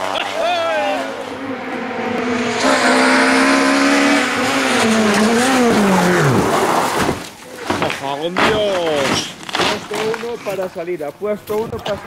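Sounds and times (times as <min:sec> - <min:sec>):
rally car engine at high revs: 0:00.0 - 0:07.2.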